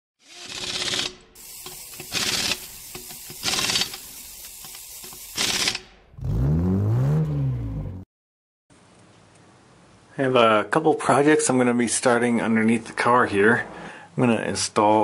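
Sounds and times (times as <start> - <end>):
mechanical clicking and ratcheting: 0.2 - 6.0
deep engine rev: 6.1 - 8.0.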